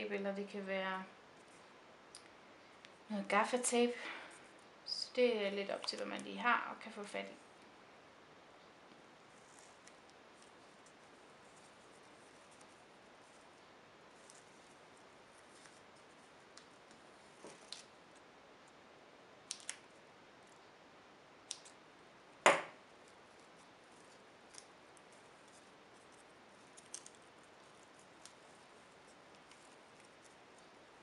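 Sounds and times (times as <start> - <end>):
loud sharp snap: 22.5 - 22.8.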